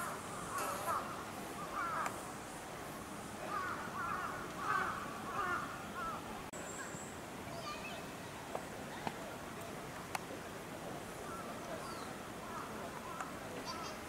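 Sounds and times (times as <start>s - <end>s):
crows cawing: 0.0s - 2.2s, 3.5s - 6.2s.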